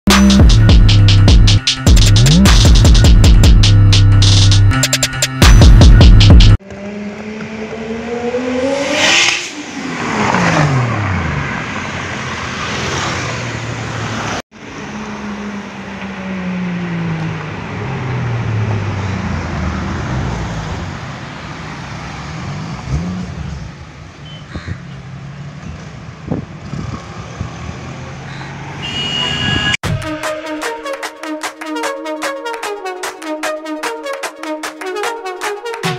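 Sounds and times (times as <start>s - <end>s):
electronic music: 0.1s - 6.6s, 29.8s - 35.9s
car engine revving: 6.3s - 24.1s
car passing by: 6.6s - 23.8s.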